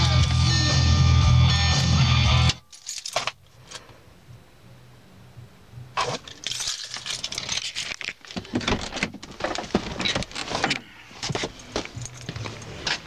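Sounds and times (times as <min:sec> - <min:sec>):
keys jingling: 0:02.7 - 0:03.4, 0:06.3 - 0:08.2, 0:11.6 - 0:12.8.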